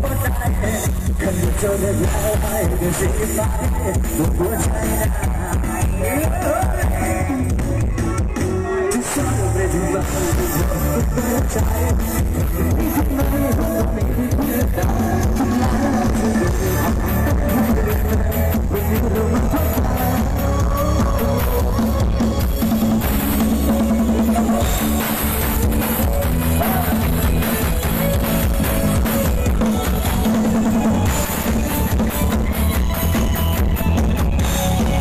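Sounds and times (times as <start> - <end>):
loud dance music: 0.0 - 35.0.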